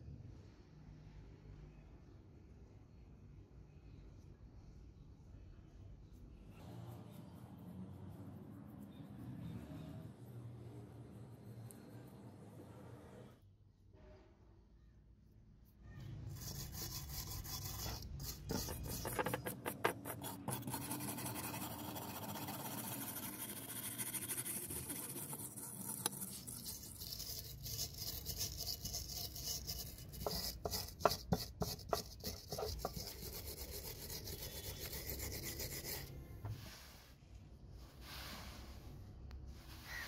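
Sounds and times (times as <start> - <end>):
wire brush scrubbing metal: 16.3 - 36.1.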